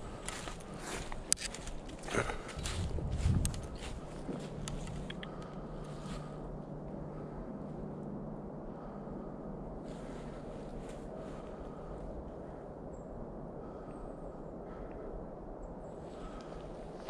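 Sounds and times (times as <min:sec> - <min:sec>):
footsteps crunching in dry leaves: 0:00.0 - 0:05.1
steady low hum: 0:00.0 - 0:17.0.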